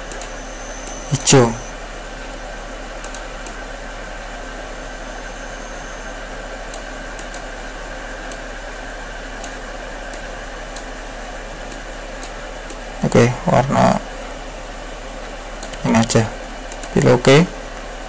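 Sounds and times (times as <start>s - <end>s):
computer mouse clicks: 0.0s - 1.4s, 3.0s - 3.6s, 6.7s - 7.5s, 9.4s - 10.9s, 15.6s - 15.9s, 16.7s - 17.1s
low mains hum: 0.0s - 18.0s
microphone hiss: 0.0s - 18.0s.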